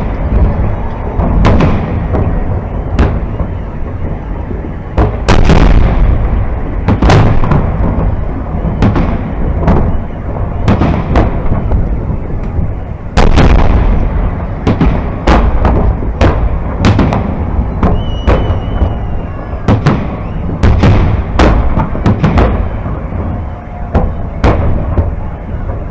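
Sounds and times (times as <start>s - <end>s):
deep rumble: 0.0s - 25.9s
firework shells booming: 0.0s - 25.9s.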